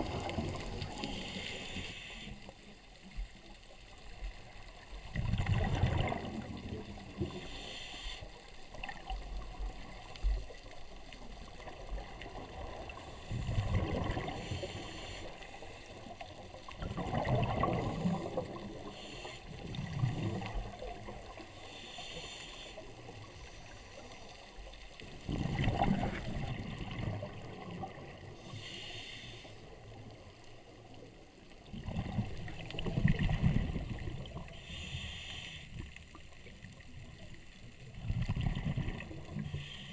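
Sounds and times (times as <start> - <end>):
exhaled bubbles gushing underwater: 0.0 - 1.4, 4.1 - 7.4, 10.9 - 14.8, 16.0 - 21.5, 24.6 - 28.4, 31.4 - 34.6, 36.4 - 39.8
hissing breaths through regulator: 7.2 - 8.4, 14.3 - 16.0, 18.8 - 19.5, 21.6 - 22.9, 28.4 - 29.7, 34.6 - 35.8.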